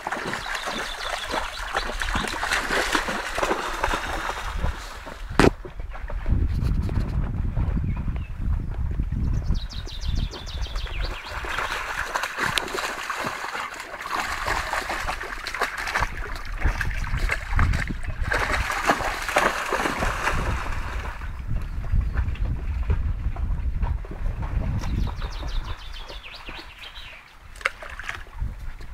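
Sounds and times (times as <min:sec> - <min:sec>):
dog splashing through stream: 0:00.0 - 0:06.0, 0:10.3 - 0:21.3, 0:25.3 - 0:28.4.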